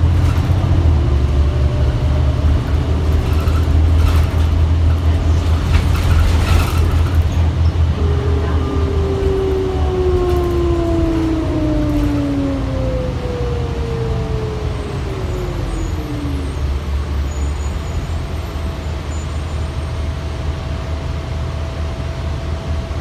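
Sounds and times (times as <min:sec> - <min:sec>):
bus engine drone: 0:00.0 - 0:23.0
falling whine: 0:05.9 - 0:18.7.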